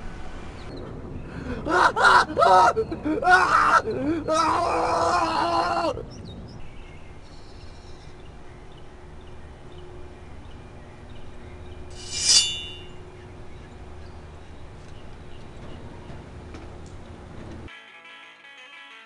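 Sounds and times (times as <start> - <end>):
person wailing: 1.7 - 6.0
short shrill call: 12.0 - 13.0.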